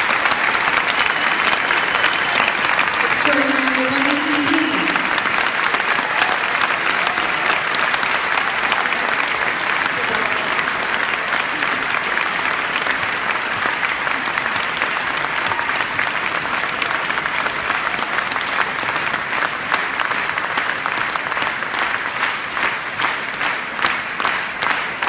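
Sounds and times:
audience applauding: 0:00.0 - 0:25.0.

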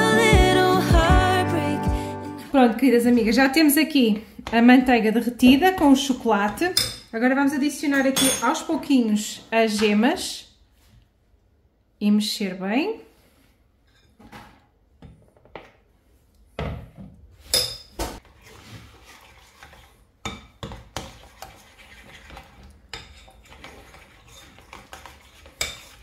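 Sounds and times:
fork scraping ceramic bowl: 0:17.6 - 0:20.0, 0:20.9 - 0:26.0.

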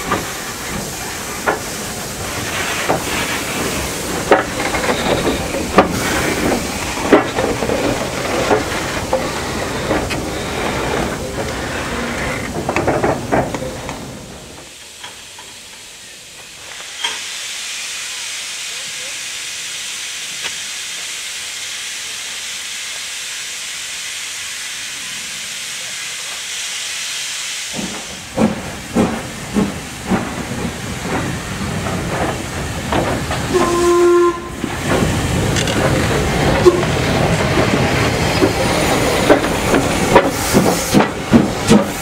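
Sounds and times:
steam hissing: 0:00.0 - 0:42.0
steam locomotive exhaust chuffs: 0:00.0 - 0:42.0
locomotive whistle: 0:33.5 - 0:34.7, 0:36.6 - 0:37.0.

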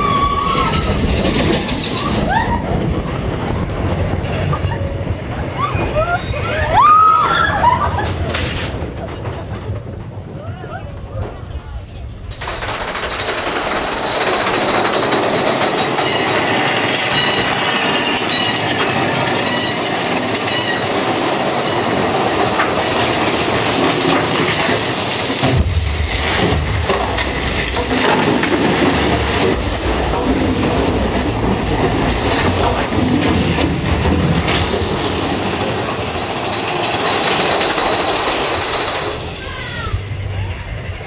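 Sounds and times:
roller coaster clattering on track: 0:00.0 - 0:41.0
deep rumble: 0:21.7 - 0:41.0.

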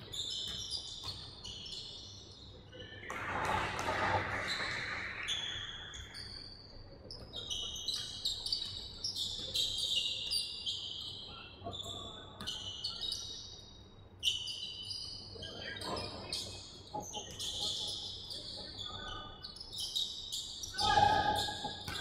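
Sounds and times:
basketball bouncing: 0:00.3 - 0:01.4.

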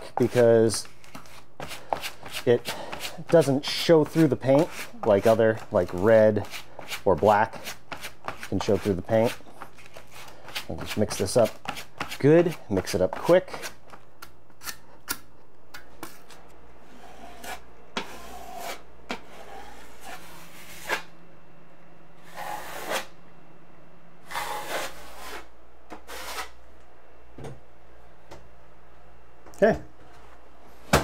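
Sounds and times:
knife spreading compound on wall: 0:00.0 - 0:14.0, 0:16.9 - 0:21.1, 0:22.2 - 0:23.1, 0:24.2 - 0:26.6
taping knives clicking and scraping: 0:13.5 - 0:15.3.

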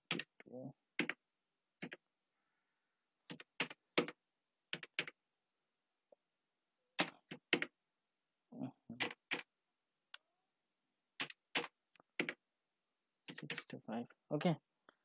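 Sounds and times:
computer keyboard typing: 0:00.0 - 0:01.2, 0:01.8 - 0:02.0, 0:03.3 - 0:05.2, 0:07.0 - 0:07.7, 0:09.0 - 0:09.5, 0:11.2 - 0:12.4, 0:13.3 - 0:13.7.

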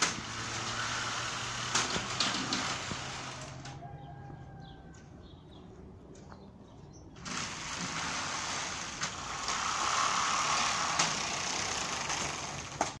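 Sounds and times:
insect screen sliding along track: 0:07.3 - 0:12.1.

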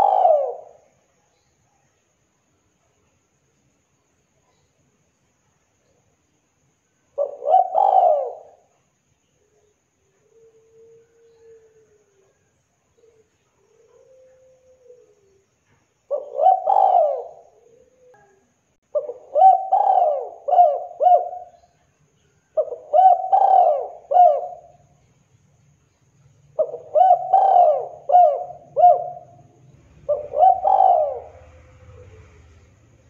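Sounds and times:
dove cooing: 0:00.0 - 0:01.0, 0:07.2 - 0:08.7, 0:10.2 - 0:15.4, 0:16.1 - 0:21.7, 0:22.6 - 0:24.9, 0:26.6 - 0:33.0.

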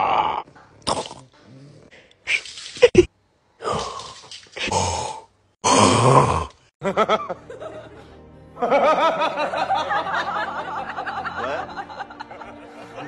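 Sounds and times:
background music: 0:06.8 - 0:13.0.

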